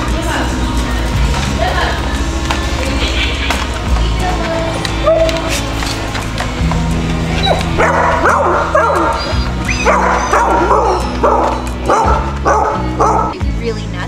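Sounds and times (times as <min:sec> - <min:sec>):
background music: 0:00.0 - 0:14.0
dog barking high yips: 0:07.4 - 0:13.3.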